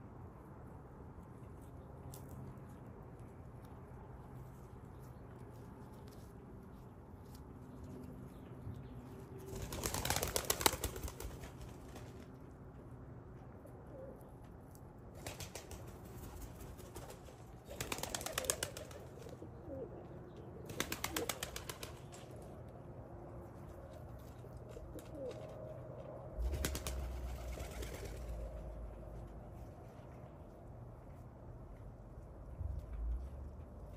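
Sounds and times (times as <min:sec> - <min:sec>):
pigeons flapping wings: 0:09.5 - 0:12.2, 0:15.2 - 0:19.4, 0:20.7 - 0:22.4, 0:26.4 - 0:28.5
pigeons cooing: 0:16.8 - 0:21.9, 0:24.6 - 0:25.8, 0:26.4 - 0:28.9.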